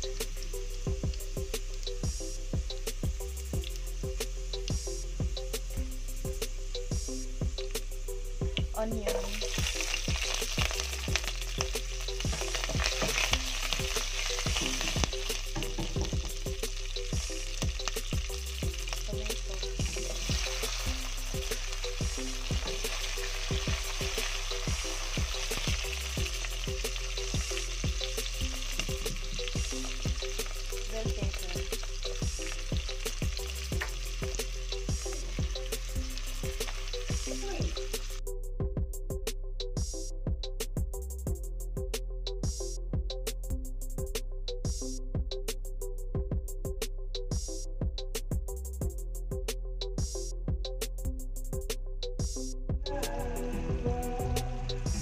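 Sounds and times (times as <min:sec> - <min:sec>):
vegetables sizzling in hot oil: 0:08.8 - 0:38.2.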